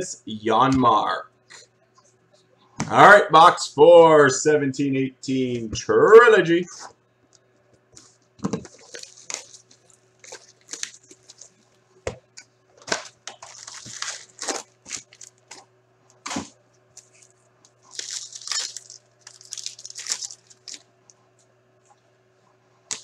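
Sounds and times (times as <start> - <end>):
plastic wrap tearing: 8.6 - 11.7, 12.8 - 15.7, 17.8 - 20.9
card pack ripping open: 8.7 - 11.5, 12.8 - 15.6, 17.9 - 20.9.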